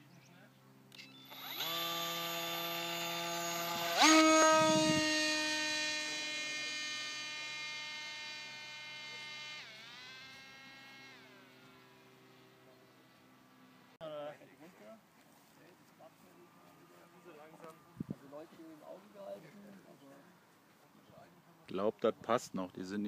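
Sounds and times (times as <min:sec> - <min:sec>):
model plane electric motor whining: 0:00.9 - 0:13.5.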